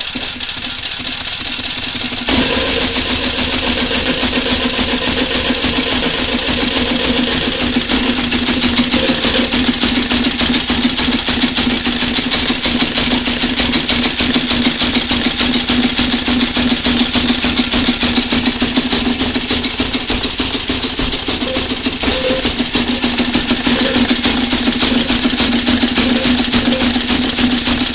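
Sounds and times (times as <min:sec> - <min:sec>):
small generator engine running: 0:00.0 - 0:27.9.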